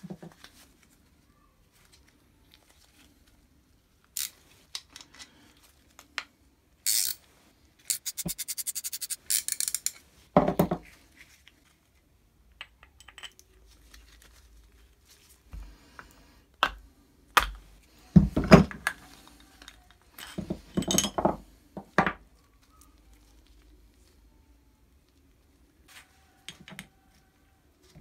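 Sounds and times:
metal parts clinking and knocking: 0:06.9 - 0:07.2, 0:07.9 - 0:10.0, 0:12.6 - 0:13.4.

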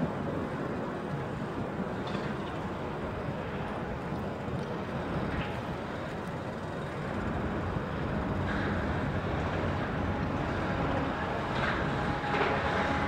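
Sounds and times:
excavator diesel engine rumble: 0:06.7 - 0:13.0.

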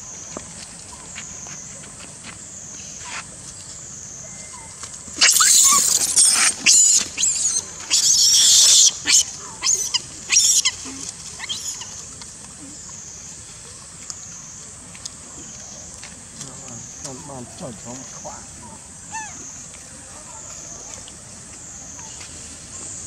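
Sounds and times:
monkey screaming: 0:05.2 - 0:10.8, 0:19.1 - 0:19.4.

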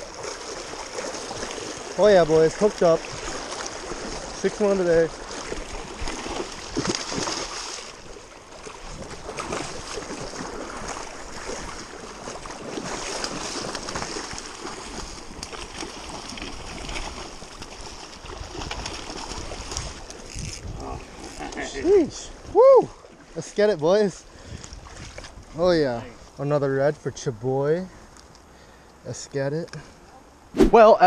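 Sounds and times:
river water rushing: 0:00.0 - 0:18.4
fish splashing at surface: 0:05.3 - 0:08.0, 0:08.6 - 0:20.4
wind buffeting microphone: 0:18.2 - 0:21.2.

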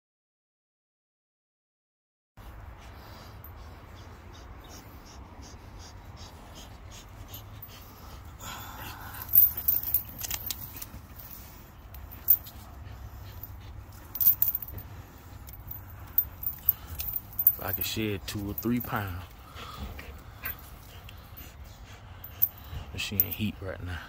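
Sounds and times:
dog breathing hard through nose: 0:02.4 - 0:17.6, 0:19.0 - 0:23.0
metal chain clinking: 0:08.8 - 0:19.3, 0:22.2 - 0:23.6.

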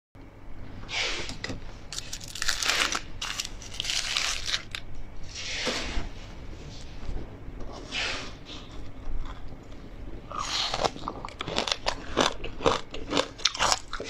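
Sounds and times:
foil wrapper crinkling: 0:01.9 - 0:04.8.

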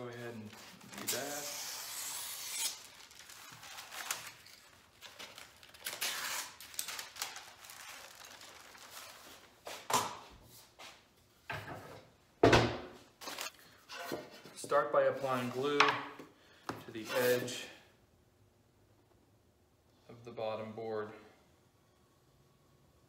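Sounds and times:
paper rustling and crinkling: 0:02.7 - 0:09.8.

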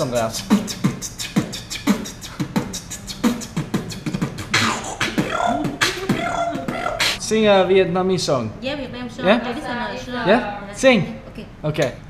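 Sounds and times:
beatboxing: 0:00.0 - 0:07.2.

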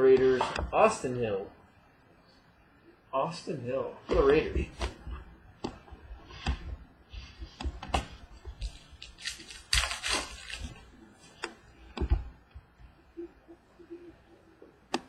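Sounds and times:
wrapper rustling: 0:08.6 - 0:10.9.

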